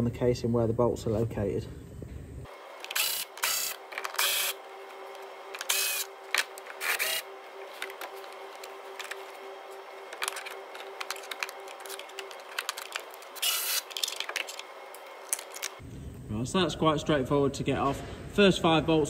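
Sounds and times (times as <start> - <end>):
steady low hum: 0.0 - 19.0
cordless ratchet running: 2.8 - 4.6, 5.6 - 7.2, 10.2 - 14.6.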